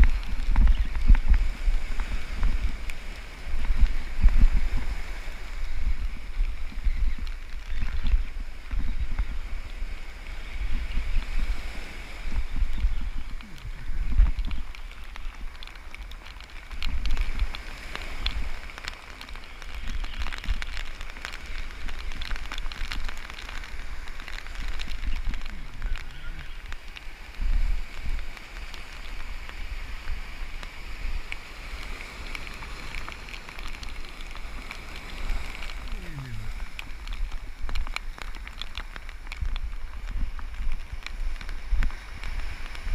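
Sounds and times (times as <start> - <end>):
surf breaking on beach: 0.0 - 42.9
wind buffeting microphone: 0.0 - 42.9.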